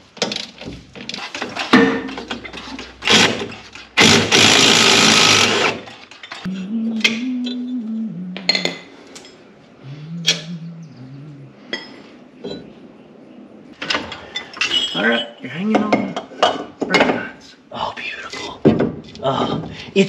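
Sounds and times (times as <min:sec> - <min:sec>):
cordless power tool spinning: 0:04.0 - 0:05.8
low wordless voices: 0:06.5 - 0:08.9, 0:09.6 - 0:12.3.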